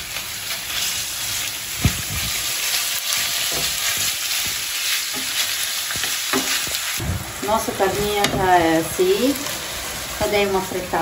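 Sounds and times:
meat sizzling in a frying pan: 0.0s - 11.0s
spatula stirring and knocking pan: 3.1s - 6.9s.

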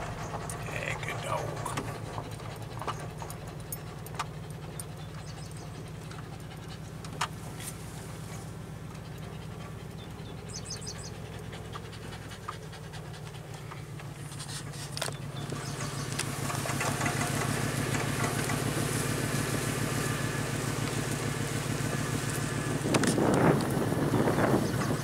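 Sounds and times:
dog panting: 0.0s - 7.6s, 8.3s - 14.6s
car rolling hum: 0.0s - 25.0s.

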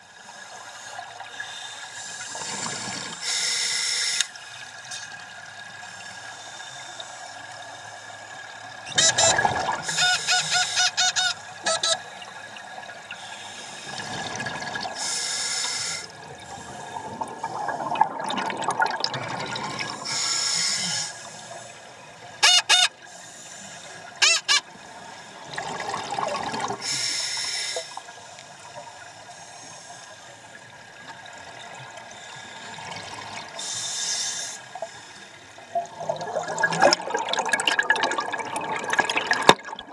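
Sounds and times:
hissing regulator inhalations: 0.3s - 4.3s, 15.0s - 18.0s, 20.0s - 22.0s, 23.1s - 24.1s, 26.8s - 28.5s, 33.6s - 35.5s
bubbly regulator exhalations: 17.0s - 20.2s, 35.8s - 39.9s.

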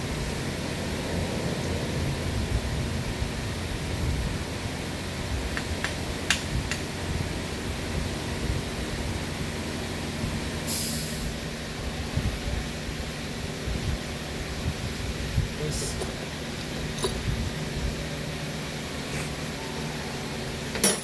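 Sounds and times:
short hiss: 10.7s - 11.3s
workshop background noise: 15.6s - 17.6s, 18.9s - 19.8s, 20.6s - 21.0s.

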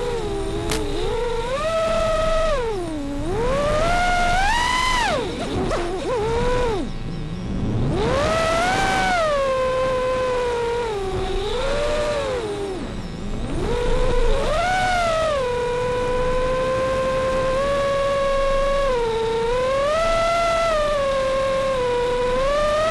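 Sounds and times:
drone motors whining: 0.0s - 22.9s.

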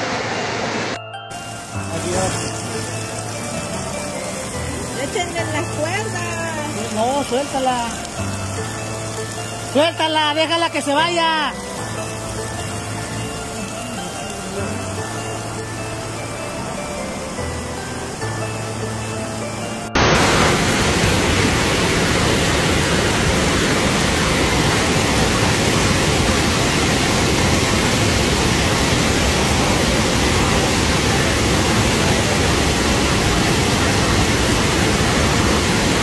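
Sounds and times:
floodwater rushing: 0.0s - 36.0s.

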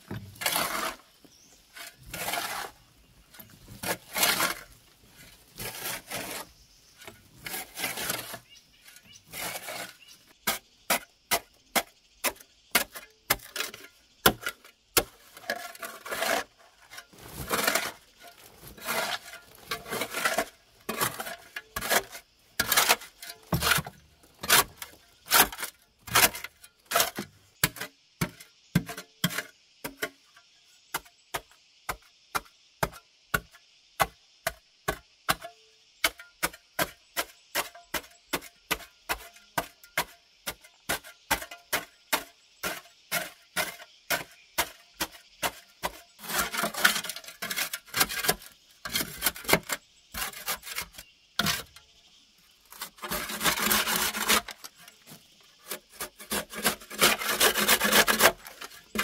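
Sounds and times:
loose earth rustling: 0.0s - 27.6s, 40.7s - 59.0s
scraping of earth: 0.0s - 30.2s, 35.3s - 59.0s.

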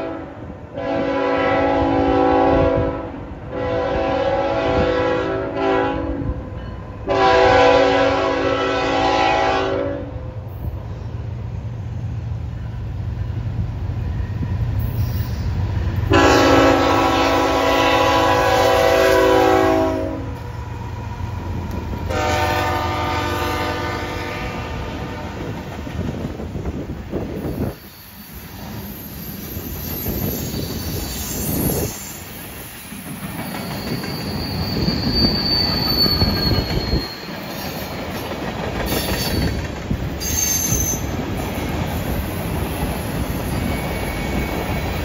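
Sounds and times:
locomotive air horn blasts: 0.0s - 6.4s, 7.0s - 10.2s, 16.1s - 20.5s, 22.1s - 25.5s
diesel locomotive drone: 0.0s - 45.0s.

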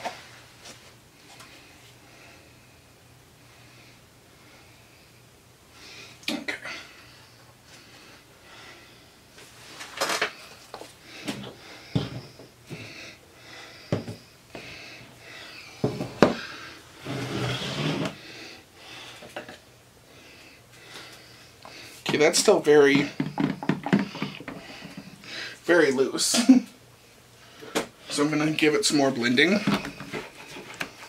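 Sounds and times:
objects knocking on tabletop: 23.2s - 24.6s.

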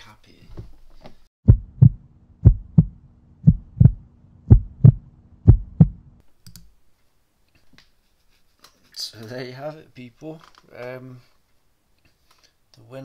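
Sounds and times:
heartbeat thumps: 1.4s - 6.2s
low steady hum: 1.5s - 6.2s.

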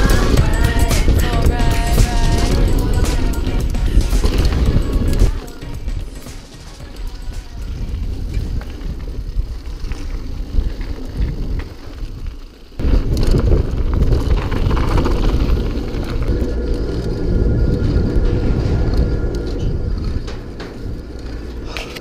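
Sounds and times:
wind buffeting microphone: 0.0s - 6.2s, 6.8s - 22.0s
bike rattles and clicks: 0.0s - 22.0s
tyres rumbling over gravel: 0.0s - 22.0s.

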